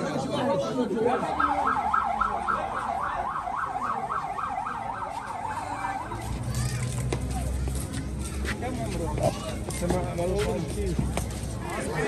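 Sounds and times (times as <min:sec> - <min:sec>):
ambulance siren yelping: 0:01.2 - 0:06.4.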